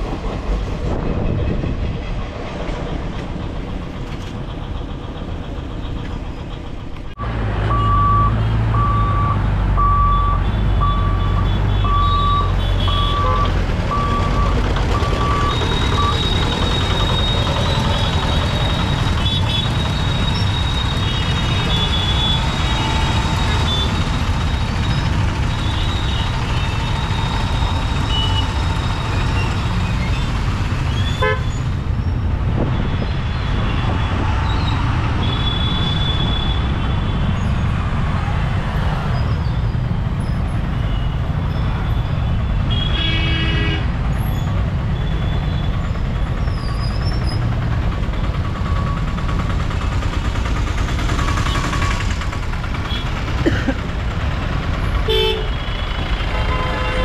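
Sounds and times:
motorcycle and truck engines rumbling: 0:00.0 - 0:57.0
vehicle horns tooting: 0:31.2 - 0:31.6, 0:42.5 - 0:43.9, 0:55.1 - 0:57.0.

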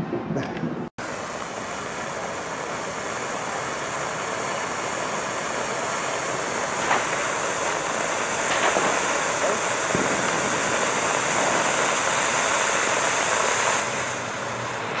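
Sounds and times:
firework fountain hissing: 0:01.0 - 0:15.0
faint crackle: 0:04.4 - 0:12.2.

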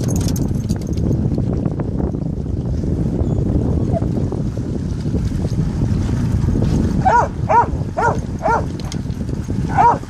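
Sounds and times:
steady low rumble: 0:00.0 - 0:10.0
dog barking: 0:07.0 - 0:08.7, 0:09.7 - 0:10.0.

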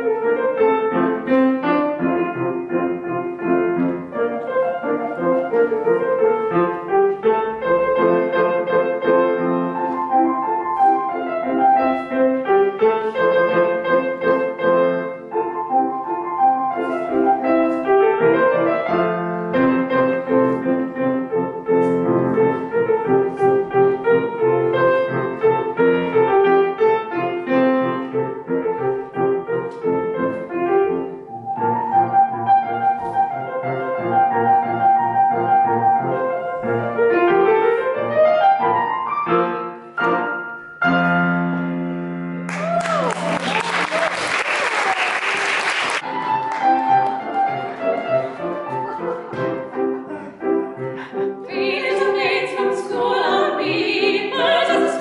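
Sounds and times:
grand piano classical piece: 0:00.0 - 0:55.0.

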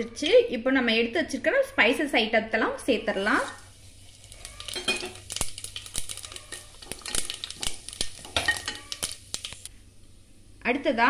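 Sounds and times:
spices crackling in hot oil: 0:03.1 - 0:11.0.

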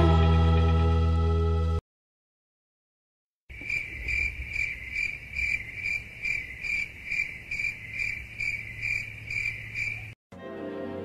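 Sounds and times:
insect chirping: 0:03.5 - 0:10.2.

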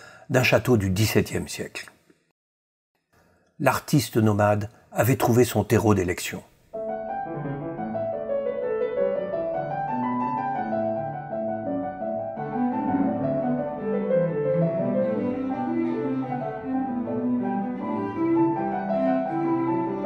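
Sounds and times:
slow piano melody: 0:06.8 - 0:20.0.

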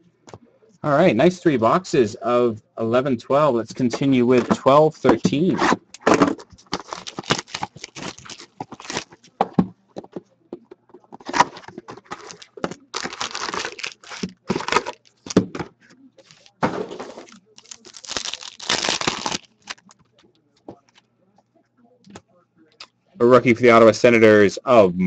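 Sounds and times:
foil packs crinkling and tearing: 0:06.6 - 0:09.2, 0:11.2 - 0:15.4, 0:16.3 - 0:16.5, 0:17.2 - 0:19.9.

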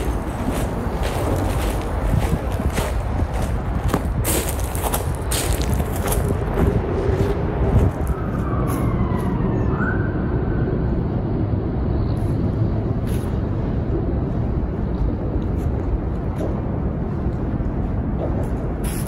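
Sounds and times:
low vehicle rumble: 0:00.0 - 0:19.0.

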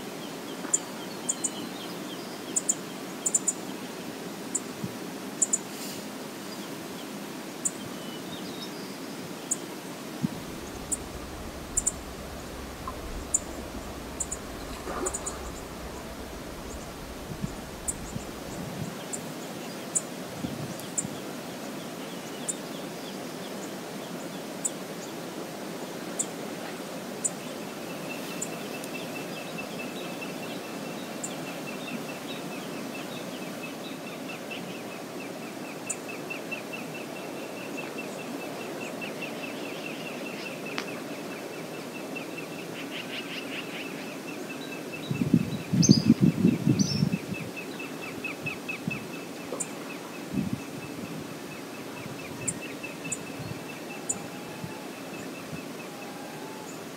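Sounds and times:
wind: 0:00.0 - 0:56.9
river water rushing: 0:09.1 - 0:20.3
low rumbling: 0:10.2 - 0:19.0
rapid ticking trill: 0:10.4 - 0:18.7.

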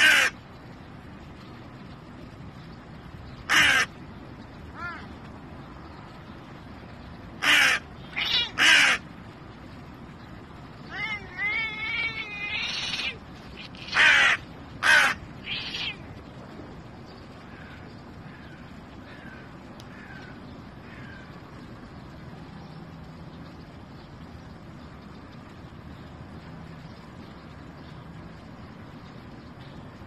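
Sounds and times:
crow cawing: 0:03.5 - 0:03.9, 0:07.4 - 0:09.0, 0:13.8 - 0:15.9.

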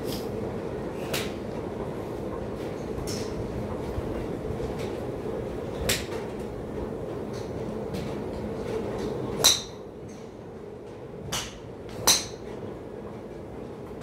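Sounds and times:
steady low hum: 0:00.0 - 0:14.0
golf clubs striking balls: 0:09.0 - 0:10.3, 0:11.3 - 0:12.6.

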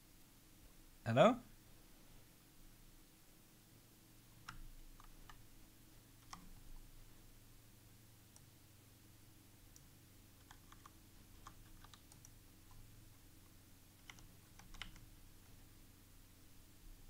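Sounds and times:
low steady hum: 0:00.0 - 0:17.0
computer keyboard typing: 0:04.4 - 0:05.4, 0:06.2 - 0:06.7, 0:09.7 - 0:12.8, 0:14.0 - 0:15.1.

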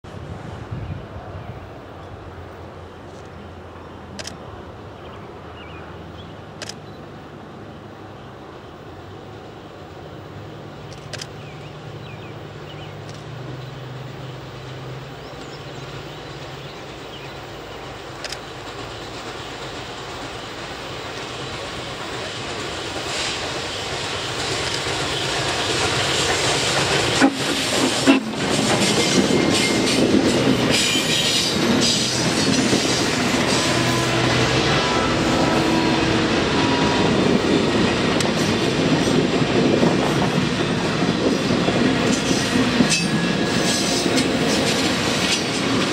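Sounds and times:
steam locomotive running past: 0:00.1 - 0:45.9
train wheels clickety-clack: 0:14.5 - 0:45.9.

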